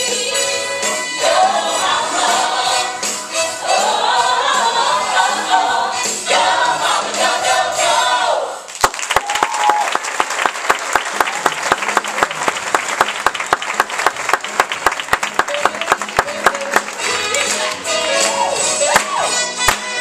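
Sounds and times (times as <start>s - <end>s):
audience applauding: 8.7s - 19.8s
audience cheering: 8.9s - 14.4s.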